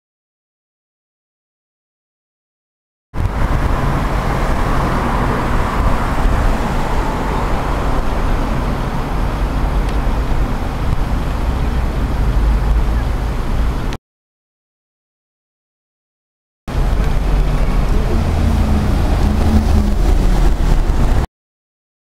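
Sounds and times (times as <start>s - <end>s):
road traffic rumble: 3.2s - 14.0s, 16.7s - 21.3s.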